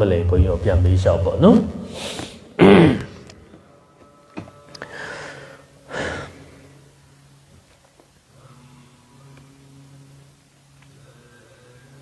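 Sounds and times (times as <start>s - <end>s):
breaths into a microphone: 4.8s - 6.4s.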